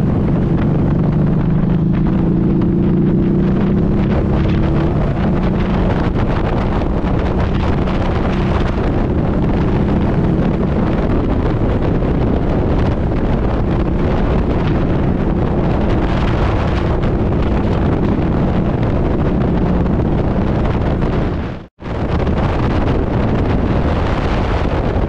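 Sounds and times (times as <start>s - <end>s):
motorcycle engine cruising: 0.0s - 25.0s
wind buffeting on microphone: 0.0s - 25.0s.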